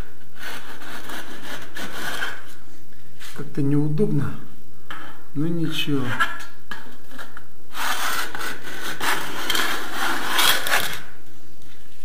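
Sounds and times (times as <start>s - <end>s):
trowel scraping wet plaster: 0.4s - 2.5s, 7.7s - 11.0s.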